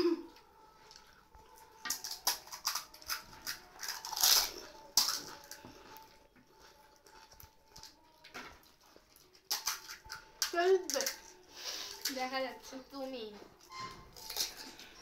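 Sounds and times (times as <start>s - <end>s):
crisp shells cracking and crunching: 1.8s - 12.2s, 14.1s - 15.0s.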